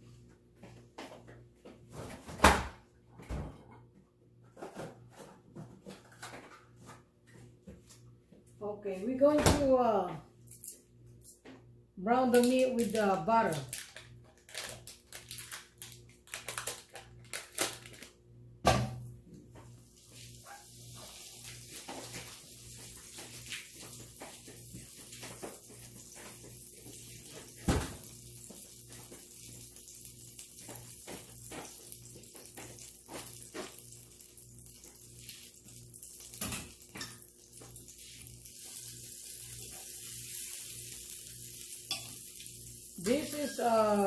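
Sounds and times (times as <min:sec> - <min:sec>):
kitchen tap running: 0:21.0 - 0:44.0.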